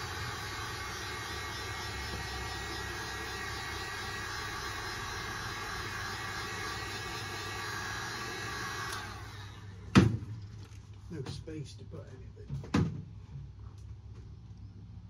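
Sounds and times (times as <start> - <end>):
heat gun blowing: 0.0 - 9.7.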